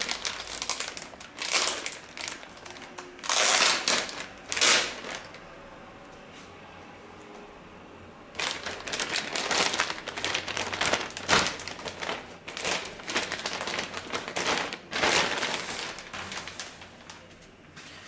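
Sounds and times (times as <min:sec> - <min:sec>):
plastic bag crinkling: 0:00.0 - 0:05.5, 0:08.3 - 0:17.4.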